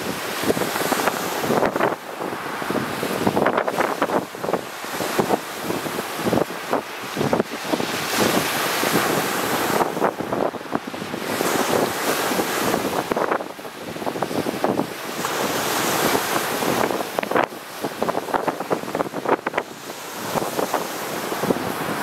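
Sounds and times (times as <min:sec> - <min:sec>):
waves breaking on rocky shore: 0:00.0 - 0:22.0
wind buffeting microphone: 0:00.0 - 0:22.0.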